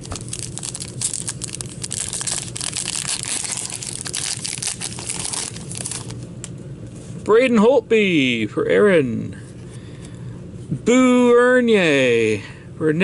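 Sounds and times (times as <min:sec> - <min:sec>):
foil wrapper tearing and crinkling: 0:00.0 - 0:06.2.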